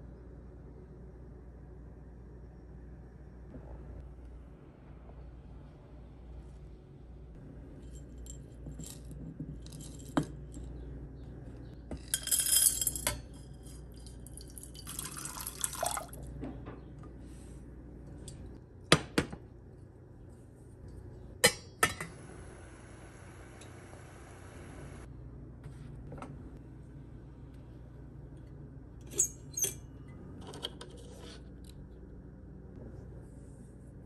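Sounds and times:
water pouring: 14.3s - 16.3s.

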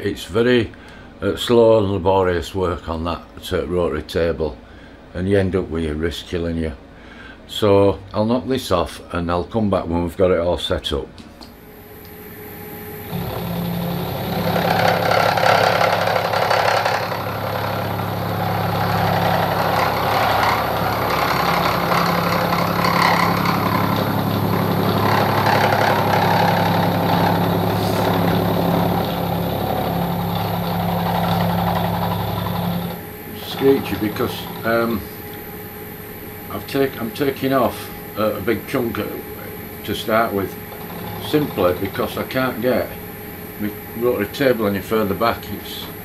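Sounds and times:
milling machine motor hum: 11.5s - 46.0s
end mill cutting metal: 11.6s - 46.0s.

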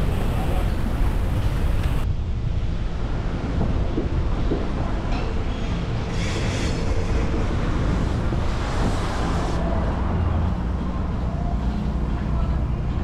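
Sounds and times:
wind on microphone: 0.0s - 11.2s
street traffic rumble: 0.0s - 13.0s
hissing rush: 6.1s - 9.6s.

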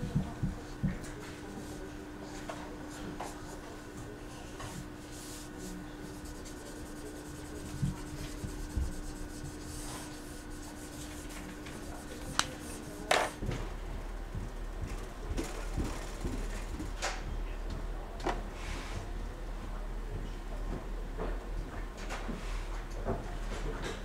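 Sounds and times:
faint steady hum: 0.0s - 21.0s
marker scratching on paper: 4.6s - 13.4s.

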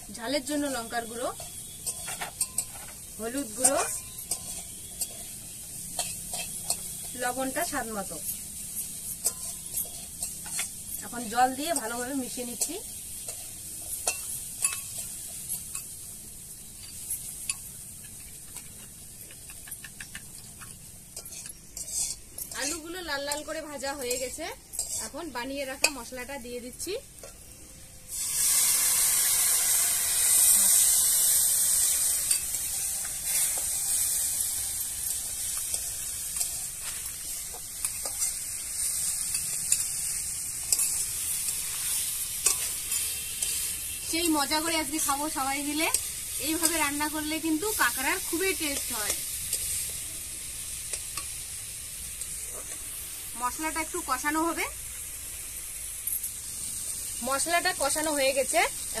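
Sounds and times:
potatoes sizzling in oil: 0.0s - 59.0s
metal spatula scraping pan: 1.3s - 7.2s, 8.3s - 10.8s, 20.4s - 25.2s, 30.3s - 43.8s
spoon scraping in a small bowl: 16.8s - 22.8s, 24.0s - 25.2s.

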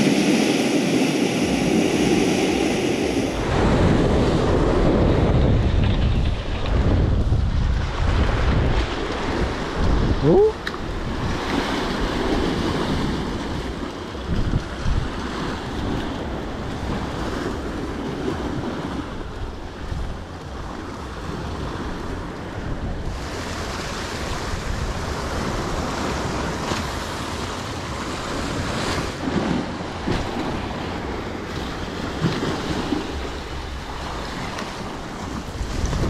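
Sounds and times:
wind buffeting microphone: 0.0s - 36.0s
surf breaking on rocks: 23.1s - 36.0s.

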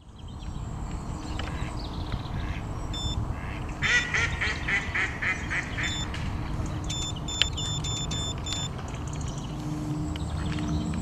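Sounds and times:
electronic bite alarm beeps: 2.9s - 3.2s, 5.8s - 6.1s, 6.8s - 8.8s.

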